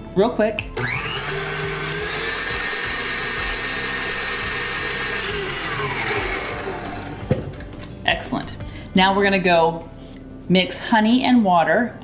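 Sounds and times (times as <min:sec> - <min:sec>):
stand mixer motor whine: 0:00.8 - 0:07.2.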